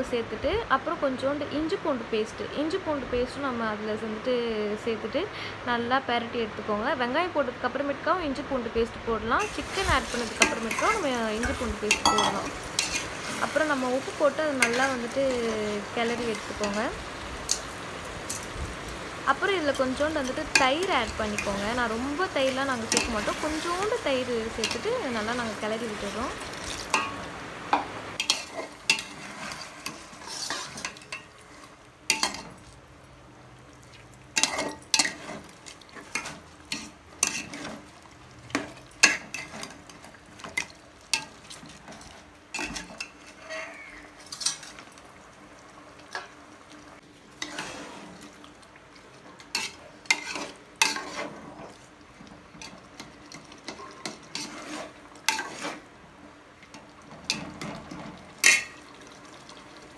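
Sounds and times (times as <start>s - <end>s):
faint frying sizzle: 0.0s - 59.9s
metal spatula scraping a pot: 9.4s - 16.9s, 28.2s - 32.5s, 34.4s - 37.8s, 38.5s - 44.9s, 47.4s - 48.2s, 49.4s - 51.8s, 52.6s - 55.8s.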